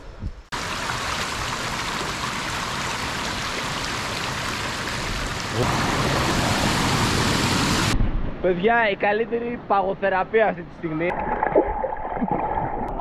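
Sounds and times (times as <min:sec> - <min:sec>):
stream rushing over rocks: 0:00.6 - 0:08.0.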